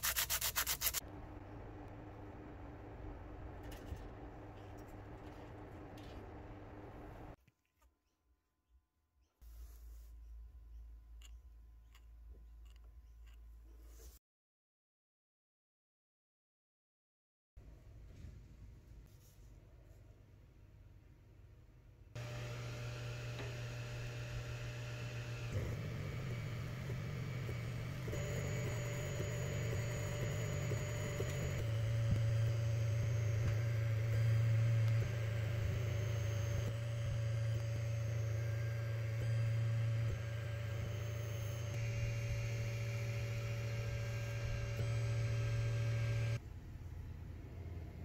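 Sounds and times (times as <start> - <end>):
laser engraver humming: 22.2 - 46.4.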